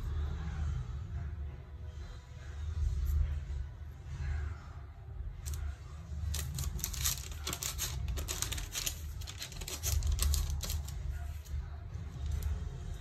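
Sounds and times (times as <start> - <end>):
steady low hum: 0.0 - 13.0
paper crinkling: 6.3 - 11.5.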